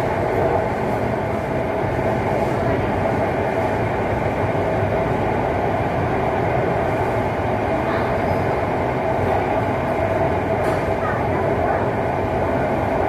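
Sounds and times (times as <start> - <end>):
train drive hum: 0.0 - 13.0.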